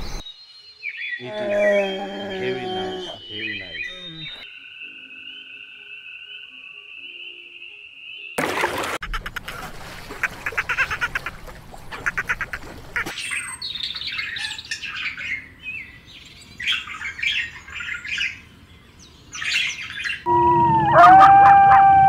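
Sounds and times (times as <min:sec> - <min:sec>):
hummingbirds chirping: 0:00.0 - 0:08.4, 0:11.9 - 0:20.3
held bird call: 0:01.2 - 0:04.5.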